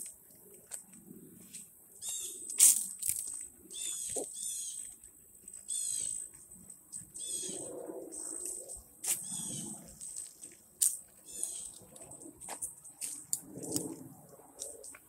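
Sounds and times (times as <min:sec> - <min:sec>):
birds chirping: 0:02.0 - 0:02.6, 0:03.6 - 0:10.2, 0:11.2 - 0:12.0.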